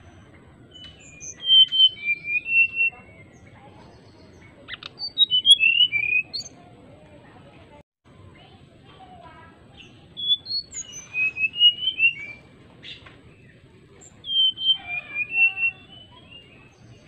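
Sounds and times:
bird singing whistled notes: 0.7 - 3.5, 4.1 - 6.6, 9.8 - 17.0.

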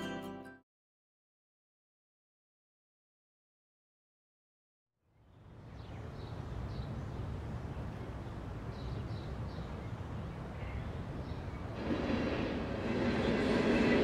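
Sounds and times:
birds chirping: 5.1 - 11.8.

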